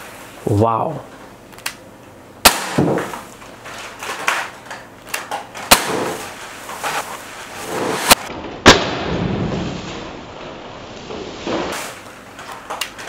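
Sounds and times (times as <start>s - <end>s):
air pistol shots: 2.4s - 3.3s, 5.6s - 6.3s, 8.0s - 9.2s.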